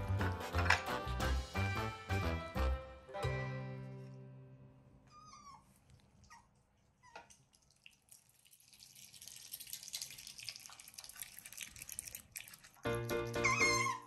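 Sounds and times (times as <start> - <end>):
otter chewing wet smacking: 9.5 - 13.7
otter squeaky chirps: 13.2 - 14.0.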